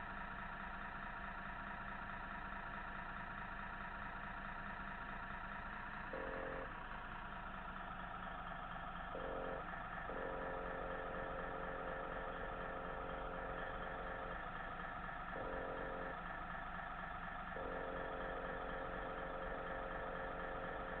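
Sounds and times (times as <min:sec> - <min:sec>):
model truck engine idling: 0:00.0 - 0:21.0
intermittent tone: 0:06.1 - 0:06.7, 0:09.0 - 0:21.0.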